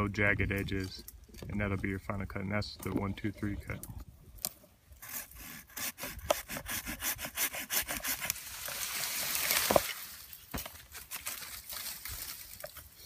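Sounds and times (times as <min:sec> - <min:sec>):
hand saw rasping through wood: 0:05.0 - 0:08.8
branch cracking: 0:08.3 - 0:13.0.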